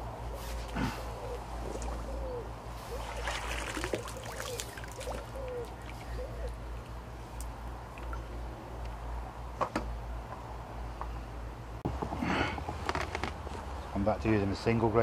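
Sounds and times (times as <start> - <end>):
bird calls: 1.0 - 6.9
water trickling and splashing: 2.7 - 6.8, 7.4 - 8.5.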